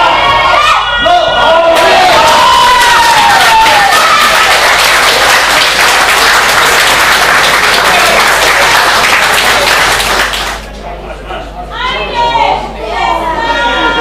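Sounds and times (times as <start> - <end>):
crowd clapping and cheering: 1.7 - 10.8.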